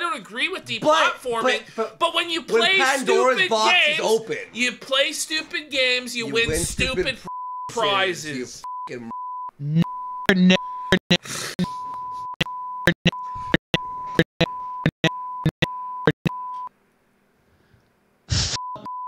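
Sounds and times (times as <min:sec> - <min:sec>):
person speaking: 0:00.0 - 0:08.6
man's voice: 0:00.0 - 0:09.1
censor bleep tones: 0:08.7 - 0:16.7, 0:18.6 - 0:19.0.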